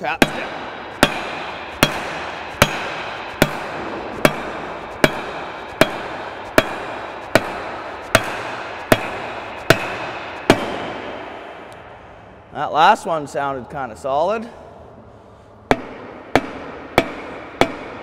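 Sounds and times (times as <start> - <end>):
hammer striking metal part: 0.0 - 11.8, 15.7 - 18.0.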